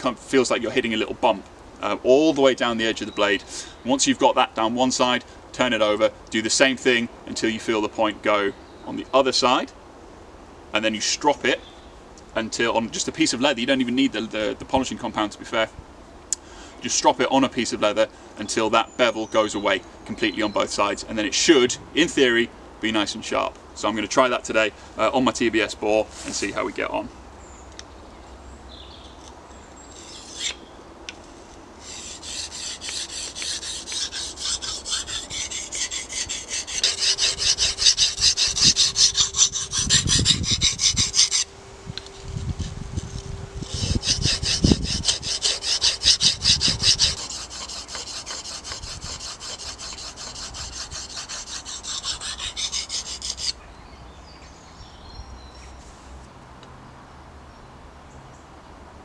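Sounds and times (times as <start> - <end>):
knife scraping on whetstone: 29.9 - 30.6, 31.3 - 53.6.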